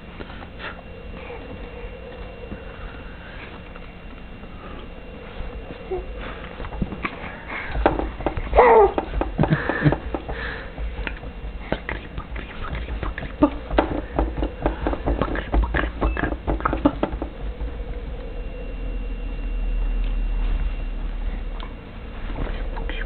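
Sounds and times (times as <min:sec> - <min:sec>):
steady low hum: 0:00.0 - 0:23.0
baby cooing and squeaking: 0:08.5 - 0:09.0.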